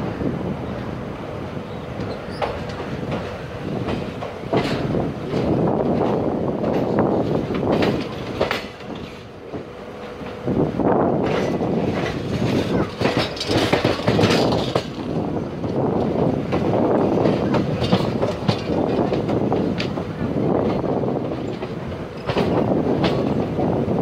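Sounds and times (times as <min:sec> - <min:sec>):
train wheels rumbling on rails: 0:00.0 - 0:24.0
wheels clacking over rail joints: 0:01.7 - 0:24.0.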